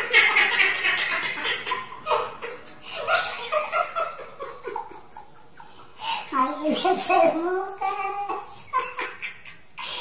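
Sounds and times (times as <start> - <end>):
man and woman laughing: 0.0 - 5.9, 8.4 - 10.0.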